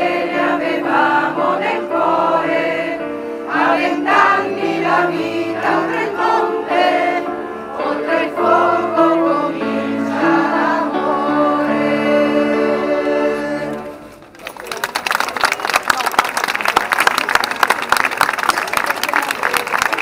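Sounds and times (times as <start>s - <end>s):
crowd singing as a choir: 0.0s - 14.1s.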